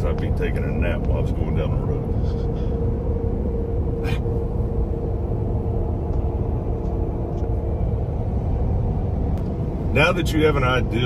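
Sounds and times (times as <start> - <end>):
constant hum: 0.0 - 11.0
road and tyre rumble: 0.0 - 11.0.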